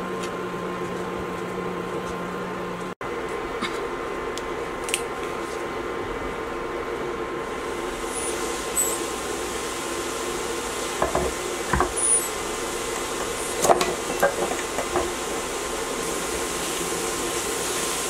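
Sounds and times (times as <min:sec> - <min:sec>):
vegetables sizzling in a skillet: 0:07.4 - 0:18.0.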